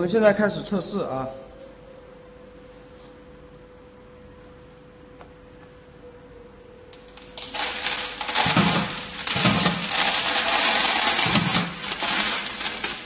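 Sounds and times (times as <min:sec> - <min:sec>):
granules rattling through a pipe: 0:07.0 - 0:13.0.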